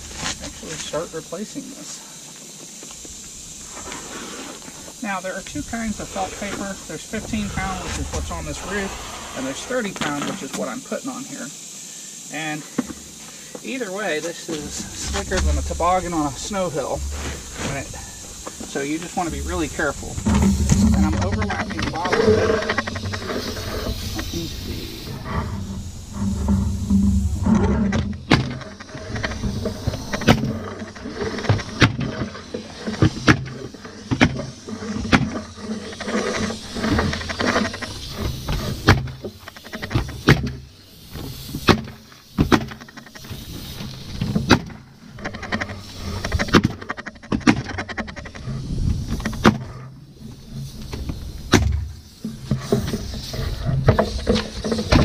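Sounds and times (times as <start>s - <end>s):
low rumble: 19.3s - 28.3s.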